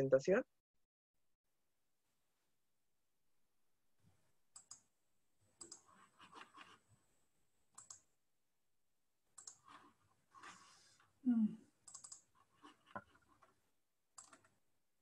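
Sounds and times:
mouse and keyboard clicking: 4.6s - 4.8s, 5.6s - 6.8s, 7.8s - 8.1s, 9.4s - 9.8s, 11.8s - 13.5s, 14.2s - 14.6s.

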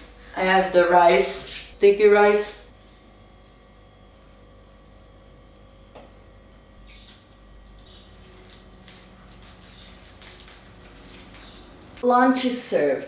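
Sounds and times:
faint steady hum: 0.0s - 13.0s
food preparation handling: 7.9s - 12.0s.

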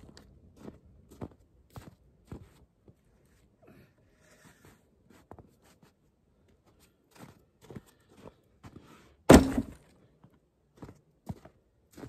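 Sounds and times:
footsteps crunching in snow: 0.0s - 3.5s, 4.4s - 9.1s, 10.8s - 12.0s
log thudding into sled: 9.2s - 9.9s.

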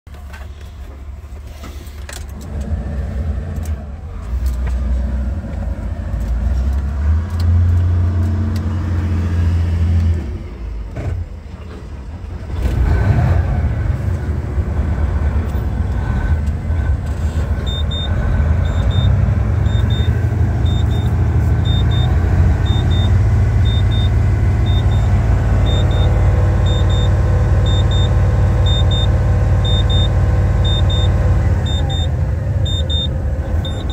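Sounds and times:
diesel truck engine idling: 9.7s - 33.9s
dashboard warning beep: 17.6s - 33.9s.

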